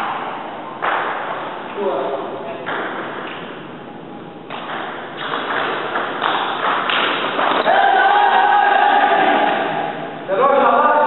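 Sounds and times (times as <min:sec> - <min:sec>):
table tennis ball hits: 0:00.0 - 0:01.5, 0:02.6 - 0:03.7, 0:04.5 - 0:08.5.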